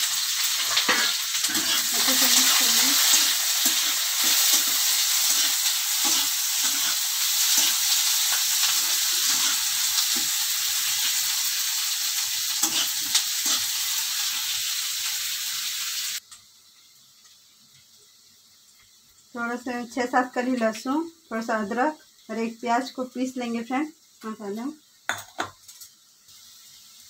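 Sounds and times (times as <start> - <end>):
onions sizzling in hot oil: 0.0 - 27.0
spatula scraping pan: 0.6 - 10.4, 12.6 - 13.8.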